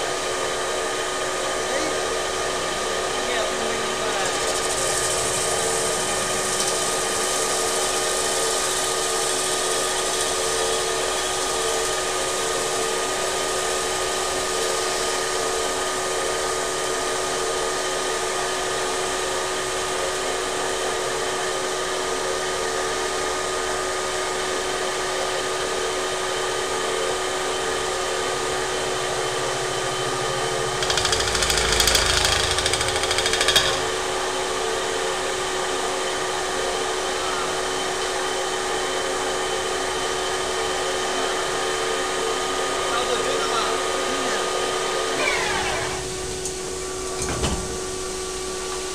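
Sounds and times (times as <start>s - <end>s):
metal-spinning lathe humming: 0.0s - 47.2s
loud rough grinding noise: 3.5s - 12.0s, 28.3s - 34.3s.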